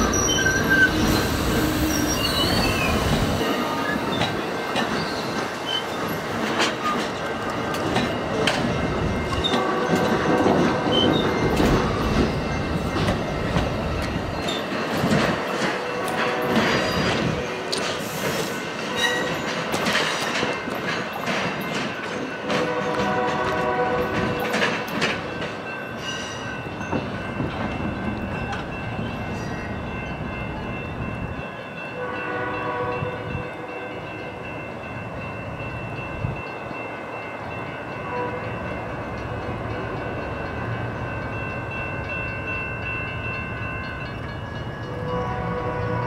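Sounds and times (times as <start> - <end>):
train wheels clicking over rail joints: 0.0 - 26.1
train rolling rumble: 0.0 - 46.0
distant train horn blasts: 9.4 - 11.2, 15.8 - 18.2, 22.5 - 24.5, 32.0 - 33.8, 38.0 - 39.7, 44.9 - 46.0.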